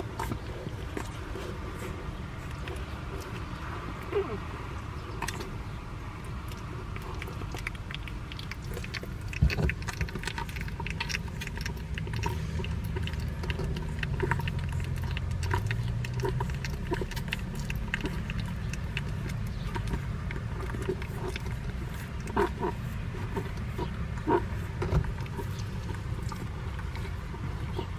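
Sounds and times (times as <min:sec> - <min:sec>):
puppies squeaky grunts: 0:00.0 - 0:05.6
puppies suckling with smacking clicks: 0:00.0 - 0:27.9.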